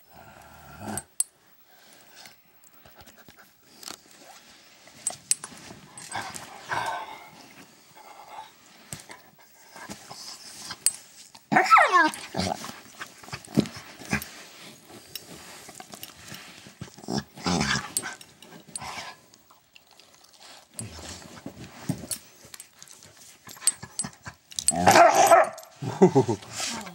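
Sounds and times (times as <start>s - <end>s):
rustling: 1.4s - 26.9s
dog whining cry: 11.5s - 12.4s.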